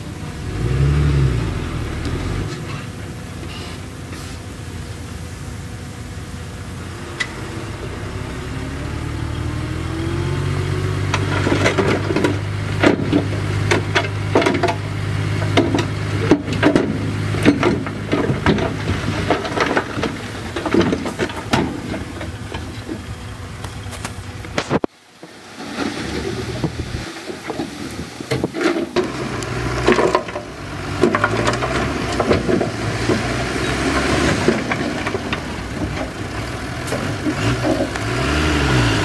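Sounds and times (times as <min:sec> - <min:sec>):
bulldozer diesel engine: 0:00.0 - 0:39.0
metallic clanks and knocks: 0:11.1 - 0:23.0.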